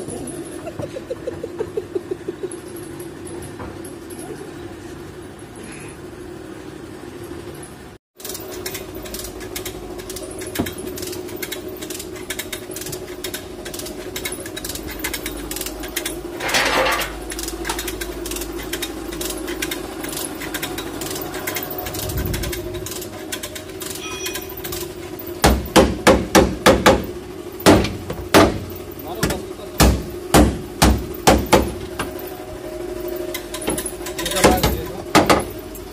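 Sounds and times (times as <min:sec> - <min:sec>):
steady hum: 0:08.8 - 0:35.9
hammer on sheet metal: 0:25.4 - 0:28.6.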